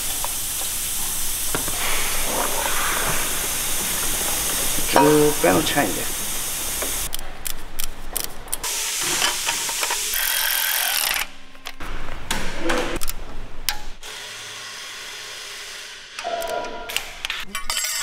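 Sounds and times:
loud air hiss: 0:00.0 - 0:07.1, 0:08.7 - 0:10.3
ratchet clicking: 0:10.1 - 0:11.3.

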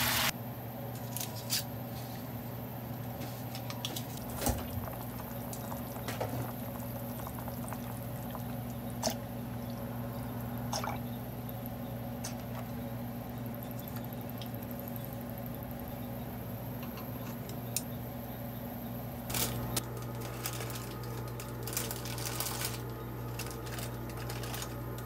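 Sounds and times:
steady low hum: 0:00.3 - 0:25.0
milk pouring into soup: 0:04.2 - 0:09.9.

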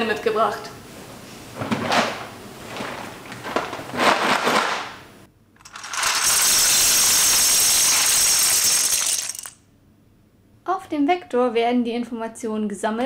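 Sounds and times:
plastic bricks clattering: 0:02.7 - 0:05.0, 0:05.6 - 0:09.6.

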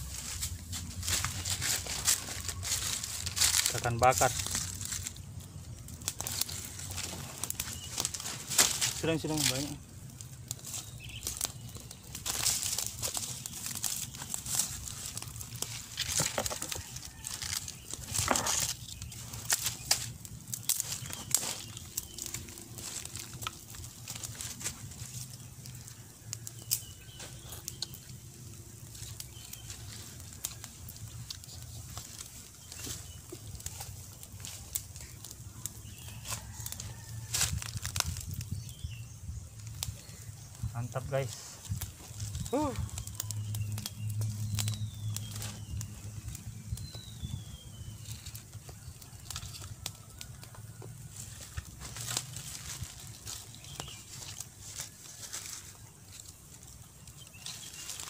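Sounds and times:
fire crackling and popping: 0:00.0 - 0:58.0.

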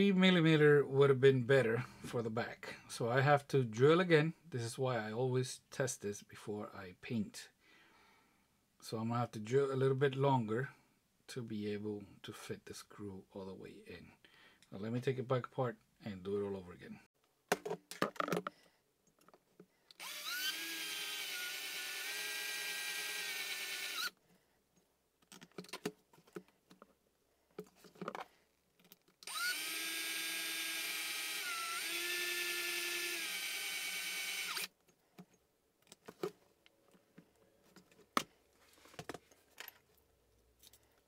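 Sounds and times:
cordless drill drilling: 0:19.9 - 0:24.2, 0:29.2 - 0:34.7.

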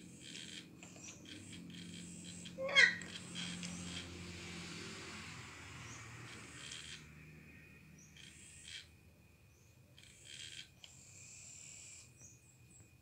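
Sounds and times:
toy motor whirring: 0:00.0 - 0:07.2, 0:10.0 - 0:12.2.

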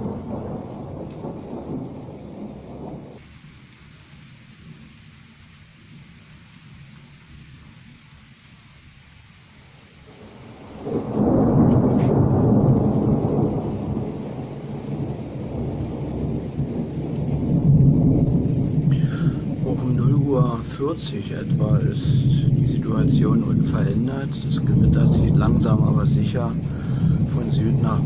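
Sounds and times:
thunder rumbling: 0:00.0 - 0:03.2, 0:10.0 - 0:28.0.

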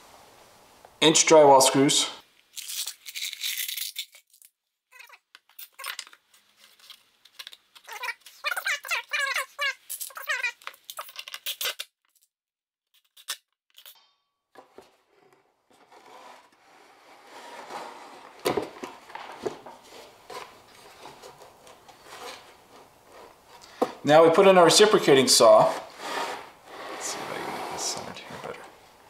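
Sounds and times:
wood boards scraping: 0:14.6 - 0:28.8.

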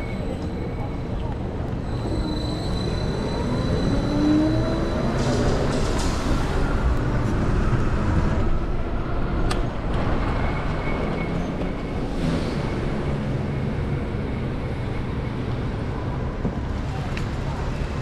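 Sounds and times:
city street traffic rumble: 0:00.0 - 0:18.0.

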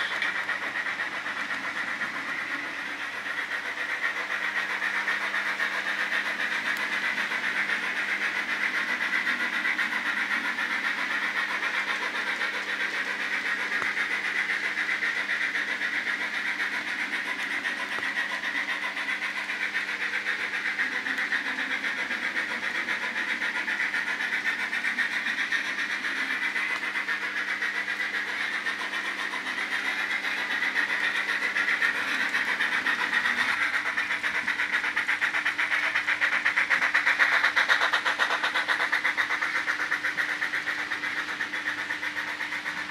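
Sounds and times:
model train whirring and rattling: 0:00.0 - 0:42.9.

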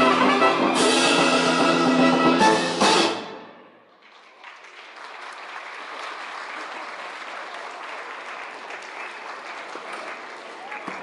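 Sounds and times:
crowd applauding: 0:03.8 - 0:11.0.

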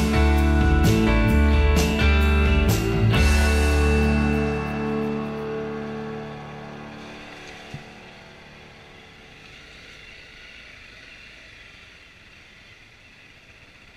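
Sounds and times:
music track: 0:00.0 - 0:09.3
dirt bike engine: 0:00.0 - 0:13.9.

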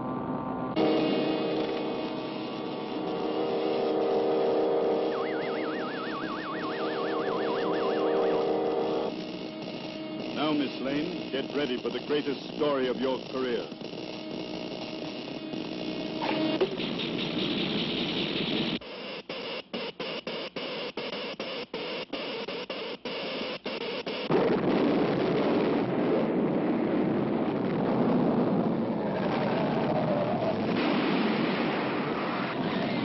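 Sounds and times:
electric crackle: 0:00.8 - 0:18.8, 0:23.4 - 0:33.0
earthquake rumble: 0:24.3 - 0:33.0.

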